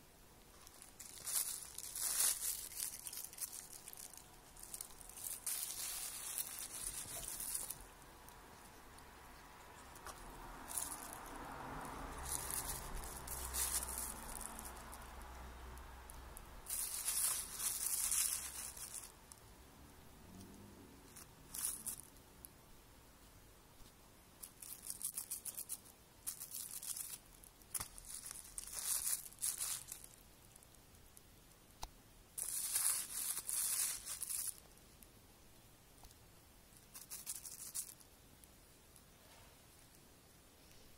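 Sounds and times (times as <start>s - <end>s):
plastic bag crinkling: 0.5s - 8.9s, 9.7s - 19.4s, 21.1s - 22.2s, 24.4s - 30.8s, 32.4s - 34.8s, 36.8s - 38.0s.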